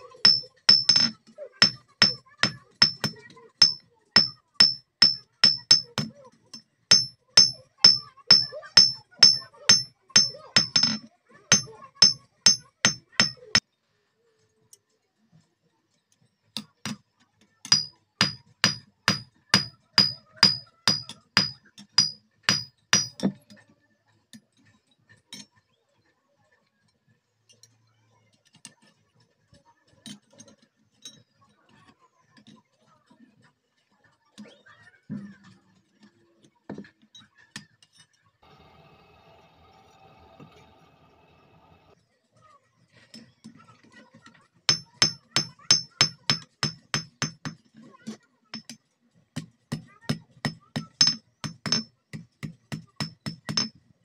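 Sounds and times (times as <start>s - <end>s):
hammer ringing on anvil: 0.3s - 6.1s, 6.9s - 13.6s, 17.7s - 23.3s, 44.7s - 47.6s, 50.5s - 51.9s, 52.8s - 53.7s.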